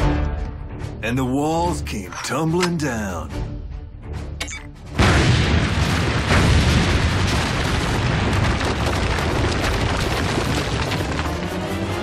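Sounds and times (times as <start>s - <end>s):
explosion blast: 4.9s - 11.3s
dense collapse rumble: 5.0s - 12.0s.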